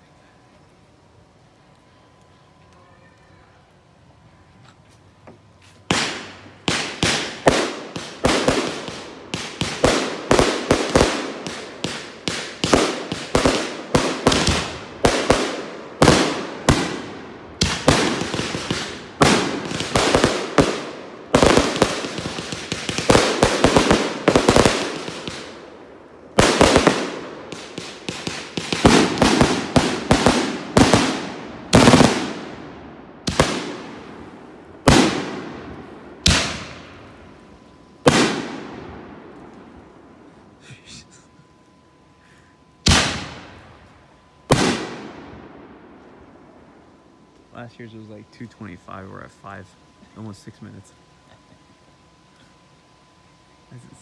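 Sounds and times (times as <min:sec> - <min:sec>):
fireworks crackling: 0:05.0 - 0:45.4
fireworks bangs: 0:05.8 - 0:39.9, 0:42.8 - 0:43.8, 0:44.4 - 0:45.7.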